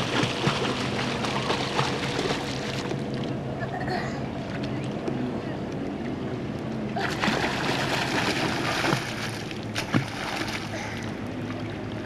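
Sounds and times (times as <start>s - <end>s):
water splashing from swimming: 0.0s - 3.3s, 7.0s - 12.0s.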